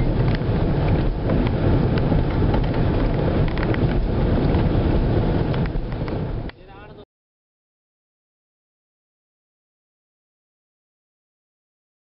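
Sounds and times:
car road and wind noise: 0.0s - 7.0s.

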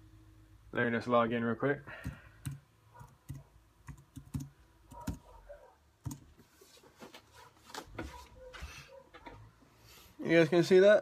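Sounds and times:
keyboard and mouse clicks: 2.0s - 5.3s, 6.0s - 6.3s.

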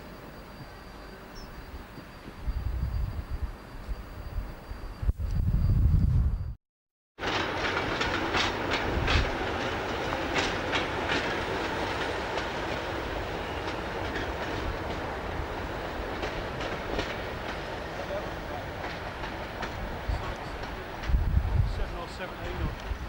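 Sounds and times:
diesel locomotive running past: 7.2s - 23.0s
wheels clicking over rail joints: 7.2s - 23.0s.

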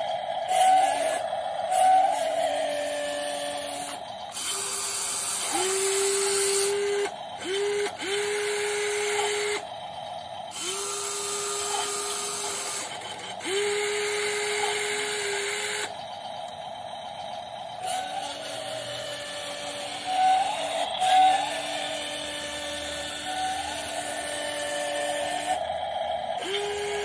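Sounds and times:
electric motors whining: 0.0s - 27.0s.

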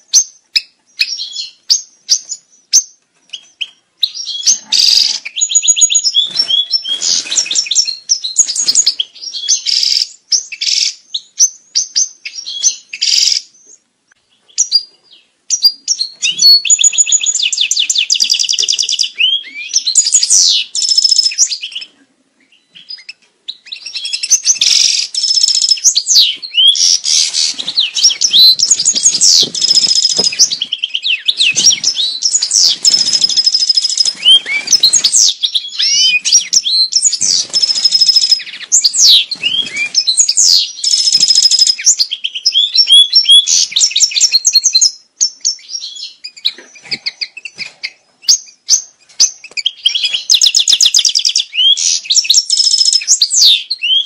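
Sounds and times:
goldfinch twittering song: 15.5s - 21.9s, 22.6s - 54.0s.

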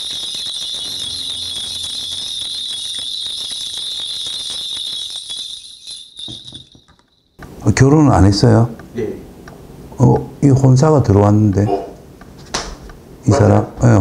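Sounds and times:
bell rattle jingling: 0.0s - 7.4s.

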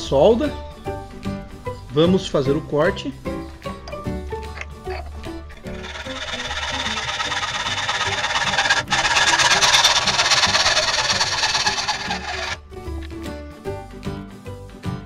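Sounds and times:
background music: 0.0s - 15.0s
hacksaw sawing metal tube: 4.8s - 12.6s.

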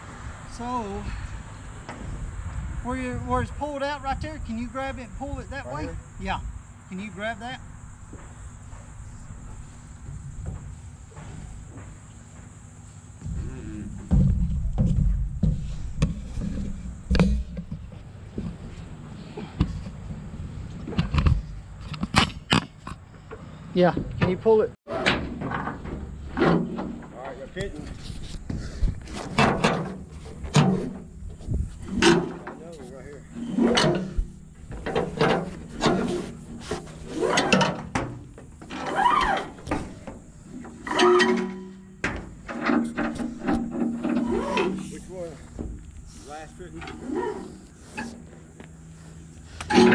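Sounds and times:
knocks and thumps on steel boom: 13.2s - 18.6s
rubber hose squeaking and rubbing: 35.0s - 38.0s, 38.6s - 41.8s, 42.6s - 45.2s, 47.0s - 48.3s.

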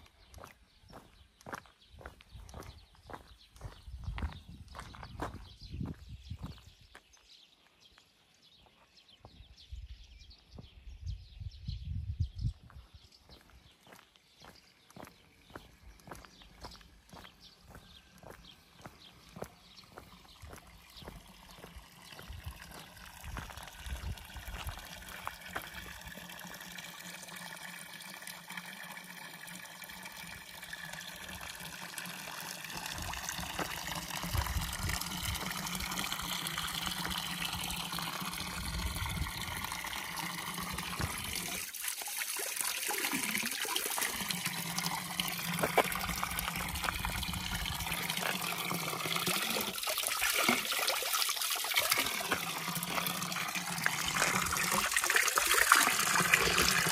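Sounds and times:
running water rushing: 16.0s - 56.9s.

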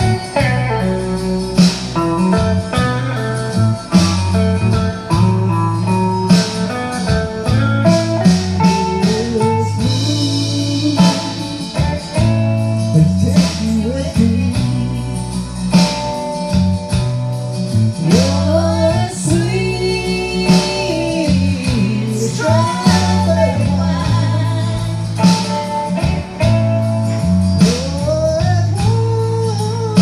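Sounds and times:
backing music with guitar: 0.0s - 30.0s
man singing into microphone: 8.6s - 15.5s, 18.0s - 25.8s, 27.6s - 30.0s.

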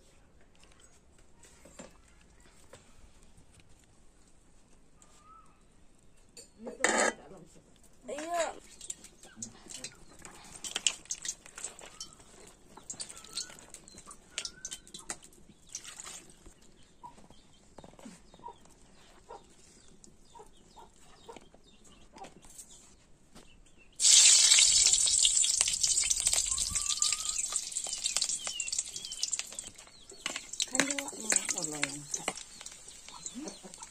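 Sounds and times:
faint bird calls: 5.0s - 5.7s, 26.4s - 33.9s
clicks and rustles of food handling: 7.7s - 20.2s, 25.0s - 33.9s
hot oil sizzling in wok: 24.0s - 33.9s.

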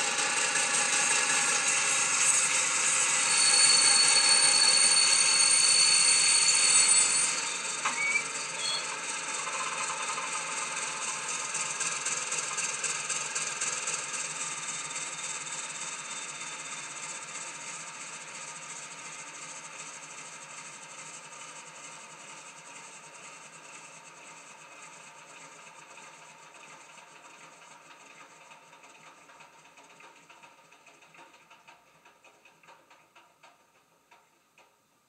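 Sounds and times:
short squeal: 0.1s - 10.6s, 13.8s - 19.5s
diesel engine sound from small speaker: 6.7s - 29.8s.

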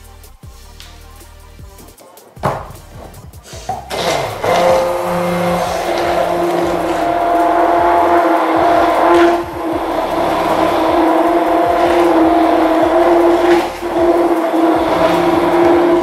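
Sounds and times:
stick blender motor whine: 3.9s - 16.0s.

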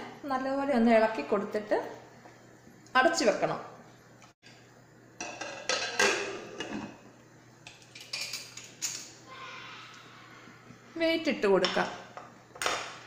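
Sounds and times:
metal lid clanking and scraping: 5.2s - 7.0s.

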